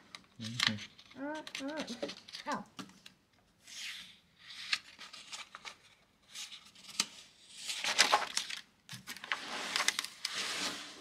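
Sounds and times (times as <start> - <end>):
paper rustling: 3.7 - 11.0.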